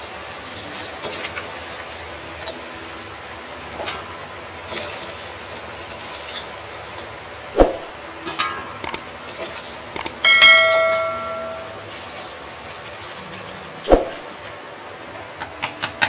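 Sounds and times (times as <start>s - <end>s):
utensils knocking on cookware: 10.0s - 11.9s
ringing metal strike: 10.1s - 11.9s.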